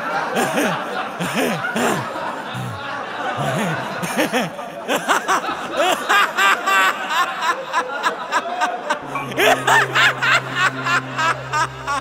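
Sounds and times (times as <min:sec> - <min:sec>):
man laughing: 0:00.3 - 0:12.0
background music: 0:09.0 - 0:12.0
low steady drone: 0:09.0 - 0:12.0.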